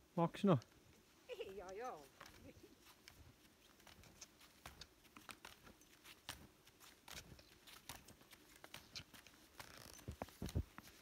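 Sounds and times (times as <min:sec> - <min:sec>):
trekking poles planted in snow: 0:00.0 - 0:11.0
snowshoe steps crunching in snow: 0:01.4 - 0:11.0.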